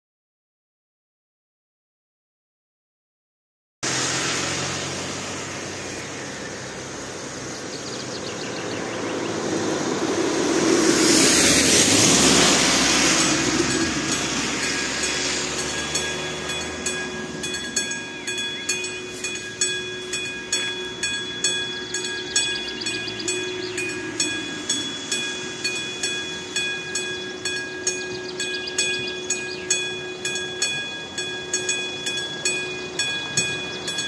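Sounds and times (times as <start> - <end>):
car tyres on wet road: 3.8 - 29.6
electronic warning bell ringing: 12.1 - 34.0.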